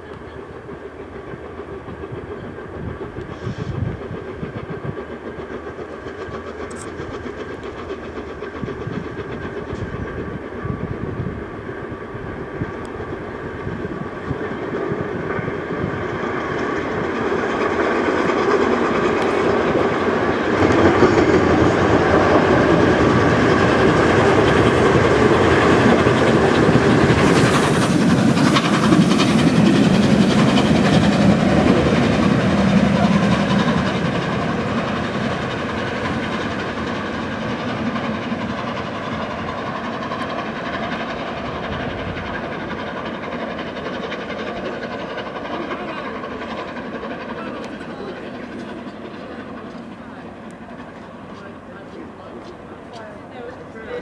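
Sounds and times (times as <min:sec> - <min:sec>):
steam locomotive running past: 0:00.0 - 0:54.0.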